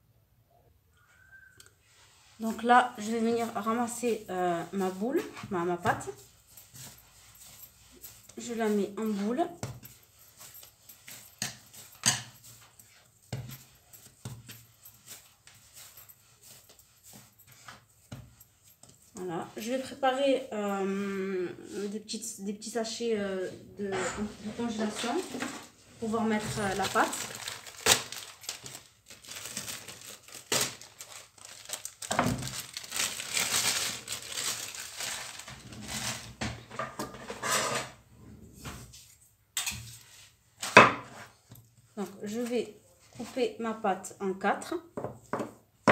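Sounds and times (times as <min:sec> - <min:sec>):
plastic bags crinkling: 0:24.7 - 0:36.7.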